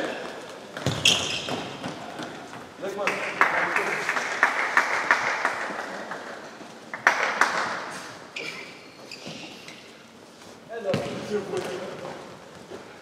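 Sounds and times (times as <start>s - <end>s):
people clapping and cheering: 2.9s - 8.0s.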